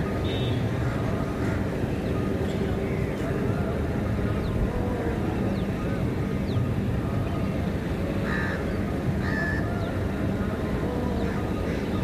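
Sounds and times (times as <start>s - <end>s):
crows cawing: 8.2s - 8.6s, 9.2s - 9.6s.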